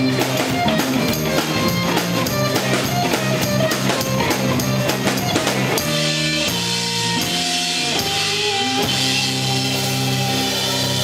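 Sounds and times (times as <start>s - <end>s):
rock band playing: 0.0s - 11.0s.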